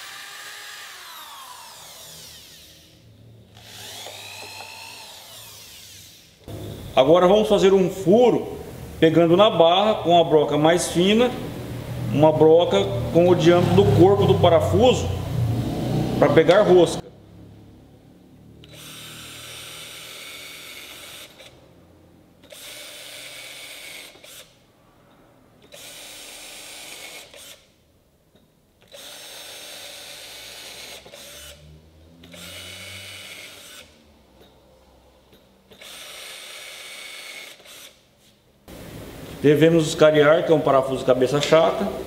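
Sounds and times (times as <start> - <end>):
cordless drill whining: 0.0 - 6.6, 18.6 - 21.6, 22.4 - 24.6, 25.6 - 27.7, 28.8 - 31.6, 32.2 - 34.0, 35.7 - 38.0.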